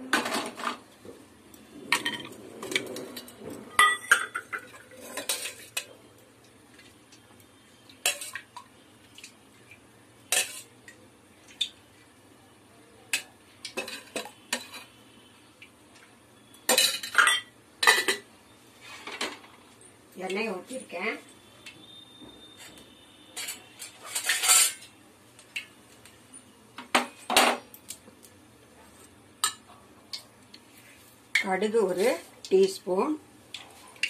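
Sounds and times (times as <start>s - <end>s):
metal vessels clinking: 1.9s - 5.9s, 16.7s - 18.3s, 23.4s - 24.9s.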